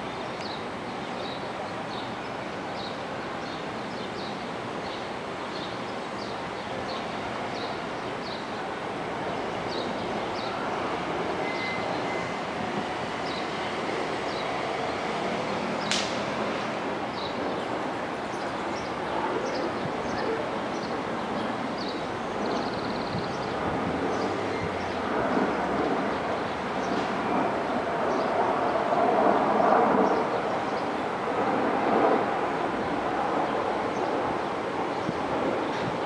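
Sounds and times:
city traffic rumble: 0:00.0 - 0:36.0
small birds chirping: 0:00.1 - 0:08.6, 0:17.1 - 0:25.1
sharp click: 0:15.8 - 0:16.2.

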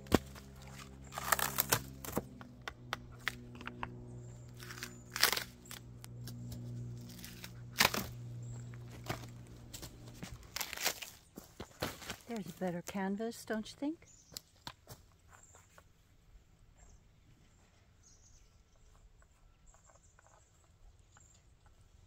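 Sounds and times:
quiet music: 0:00.0 - 0:11.0
bark and wood chips crunching: 0:00.0 - 0:13.0.

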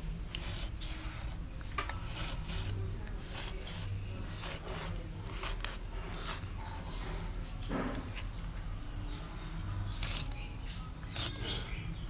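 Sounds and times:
knife scraping cuts on fish: 0:02.0 - 0:08.4, 0:11.0 - 0:11.6.

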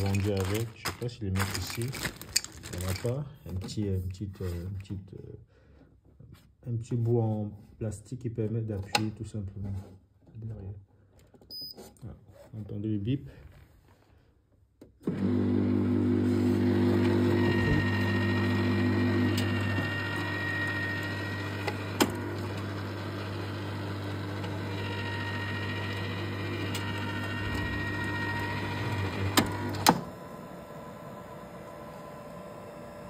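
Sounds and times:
water pump buzzing: 0:15.1 - 0:30.1.

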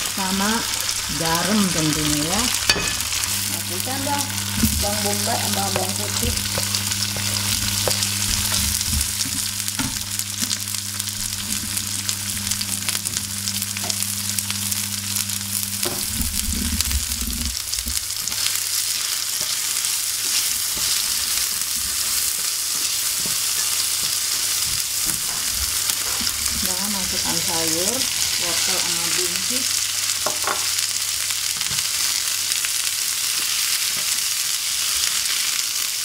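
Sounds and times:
steady low hum: 0:00.0 - 0:18.2
food sizzling in oil: 0:00.0 - 0:36.0.

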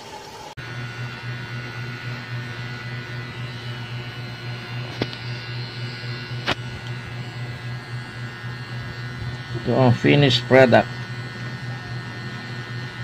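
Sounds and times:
low electrical hum: 0:00.1 - 0:13.0.

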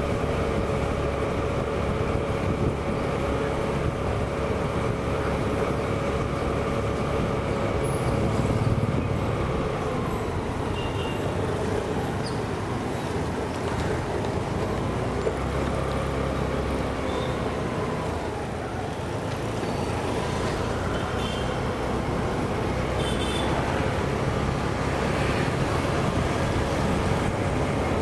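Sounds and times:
wind noise: 0:00.0 - 0:05.5
road traffic: 0:00.0 - 0:28.0.

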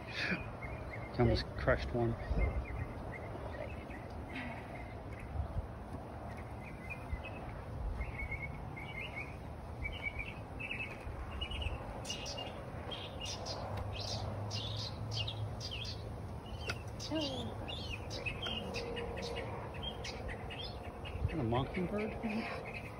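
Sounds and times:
mockingbird chirping: 0:00.0 - 0:22.9.

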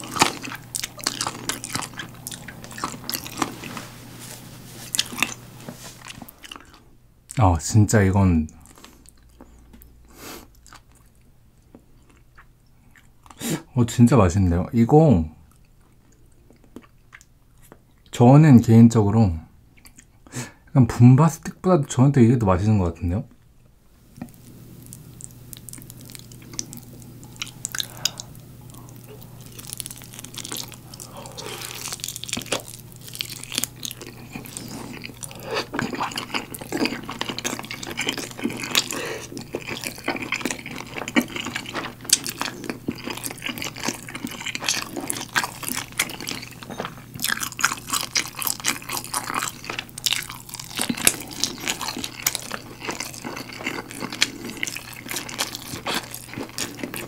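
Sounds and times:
crunching: 0:00.0 - 0:06.8, 0:24.2 - 0:57.0
wet chewing and mouth smacks: 0:00.0 - 0:06.9, 0:10.5 - 0:13.4, 0:15.5 - 0:18.1, 0:19.7 - 0:20.2, 0:24.2 - 0:57.0.

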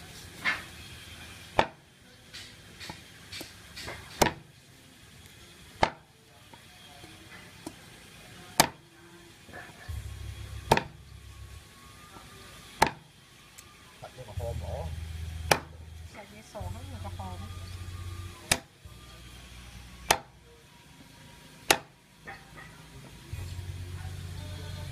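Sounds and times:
cleaver chopping meat on wood: 0:01.6 - 0:01.8, 0:02.4 - 0:04.5, 0:05.8 - 0:06.0, 0:08.6 - 0:08.8, 0:10.7 - 0:11.0, 0:12.8 - 0:13.1, 0:15.4 - 0:15.8, 0:18.5 - 0:18.7, 0:20.0 - 0:20.3, 0:21.6 - 0:21.9
low hum: 0:09.8 - 0:12.6, 0:13.5 - 0:21.7, 0:22.6 - 0:24.9.

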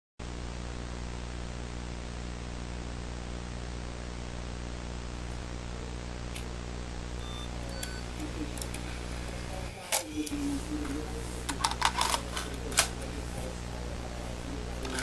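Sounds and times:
electrical mains hum: 0:00.2 - 0:15.0
static hiss: 0:00.2 - 0:15.0.

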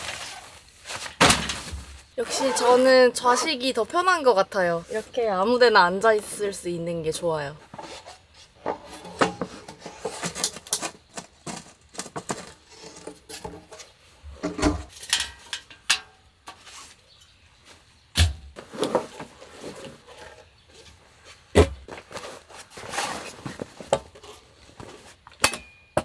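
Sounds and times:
rustling: 0:00.0 - 0:03.6.

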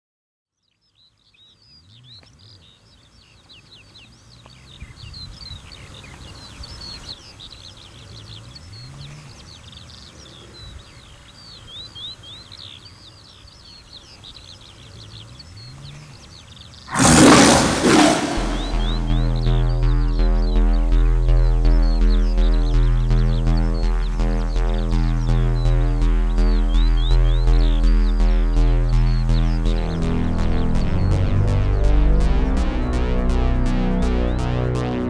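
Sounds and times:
birds chirping and singing: 0:01.0 - 0:29.8
tiger roar: 0:16.9 - 0:20.4
low growls: 0:16.9 - 0:27.0.

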